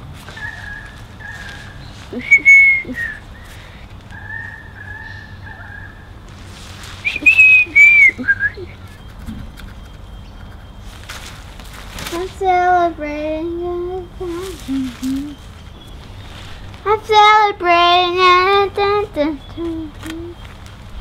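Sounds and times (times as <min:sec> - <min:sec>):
person whistling a tune: 0:02.2 - 0:03.2, 0:07.0 - 0:09.0.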